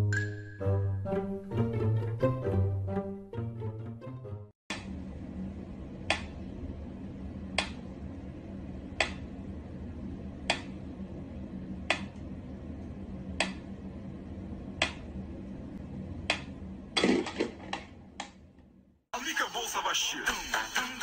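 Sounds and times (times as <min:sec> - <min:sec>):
steady low hum: 0:04.7 - 0:19.1.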